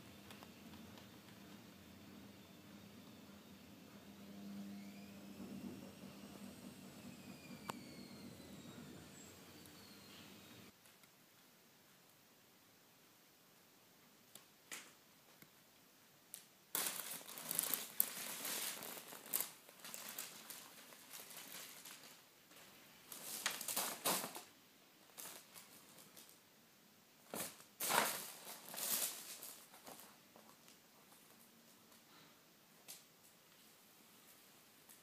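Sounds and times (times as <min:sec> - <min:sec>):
paper crinkling and rustling: 0:16.7 - 0:24.5, 0:25.1 - 0:26.4, 0:27.3 - 0:31.8.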